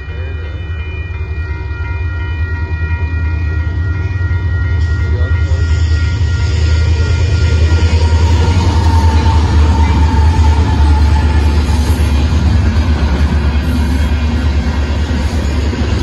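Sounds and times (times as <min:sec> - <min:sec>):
crossing warning bell ringing: 0:00.0 - 0:16.0
diesel freight train rumbling: 0:00.0 - 0:16.0.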